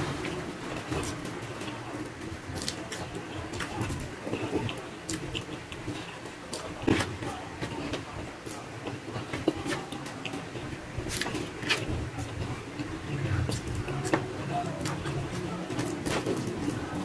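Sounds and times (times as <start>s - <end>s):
chewing and lip smacks: 0.8s - 14.2s.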